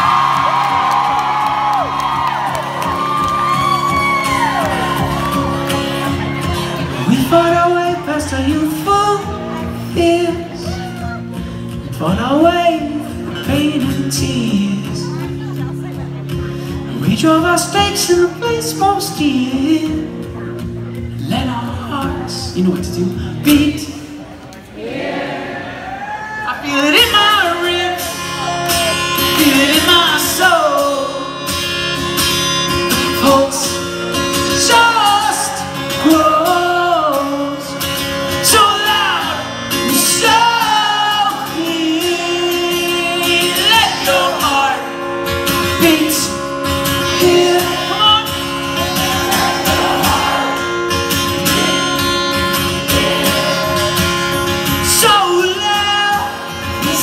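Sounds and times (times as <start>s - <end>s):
strummed guitar: 0.0s - 24.2s, 26.7s - 57.0s
crowd singing along: 24.0s - 26.0s, 33.1s - 57.0s.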